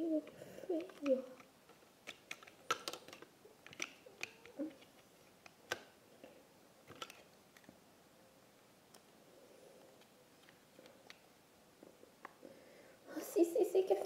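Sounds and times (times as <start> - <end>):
plastic toys clicking: 0.2 - 6.0, 6.8 - 7.7.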